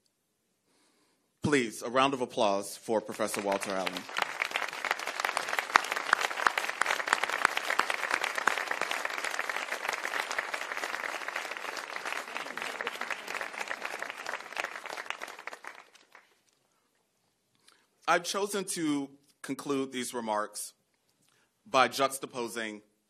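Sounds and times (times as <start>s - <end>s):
audience applauding: 3.0s - 16.4s.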